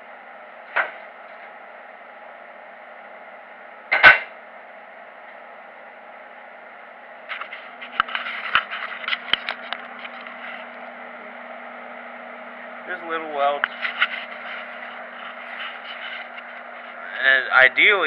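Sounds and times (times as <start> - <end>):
low steady hum: 0.0 - 18.0
metal clang on workbench: 3.9 - 4.3.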